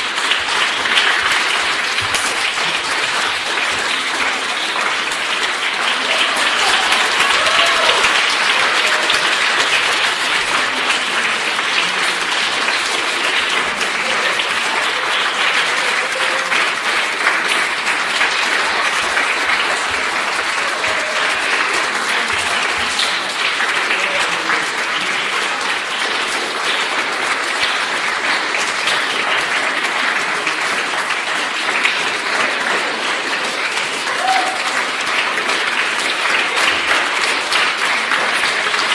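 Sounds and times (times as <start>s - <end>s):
audience applauding: 0.0s - 38.9s.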